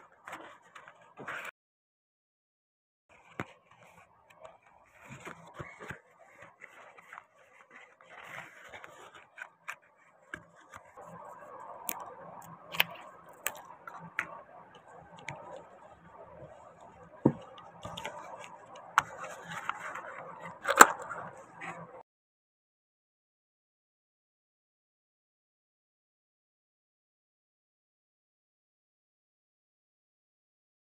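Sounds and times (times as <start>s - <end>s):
knife scraping resin: 11.9s - 15.8s, 16.4s - 21.9s
plastic parts clicking: 17.2s - 21.3s.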